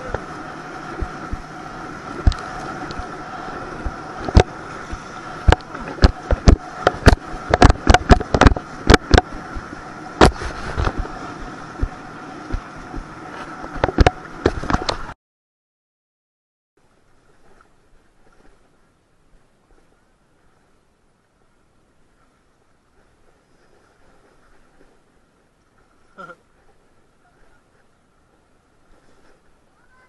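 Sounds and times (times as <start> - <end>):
high hum: 0.0 - 15.2
steady rushing noise: 0.0 - 15.2
water smacking tube: 2.2 - 3.1, 3.8 - 15.1.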